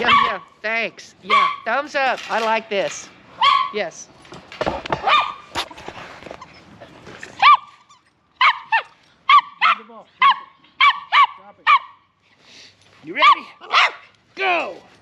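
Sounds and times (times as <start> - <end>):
dog yapping: 0.0 - 0.5, 1.3 - 1.7, 3.4 - 3.8, 5.0 - 5.6, 7.4 - 12.0, 13.2 - 14.1.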